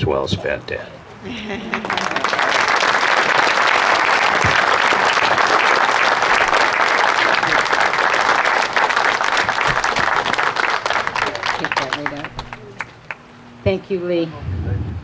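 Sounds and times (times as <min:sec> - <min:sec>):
crowd applauding: 0:01.3 - 0:13.2.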